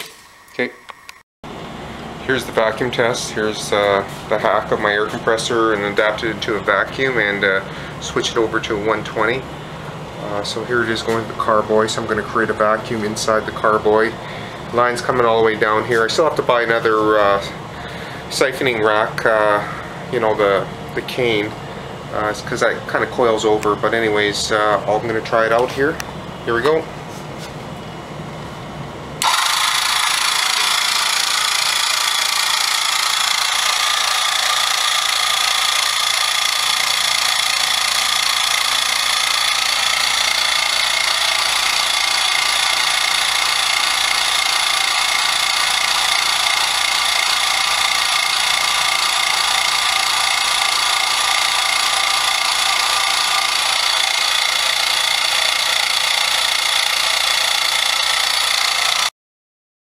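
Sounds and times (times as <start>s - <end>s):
air compressor running: 1.4s - 59.1s.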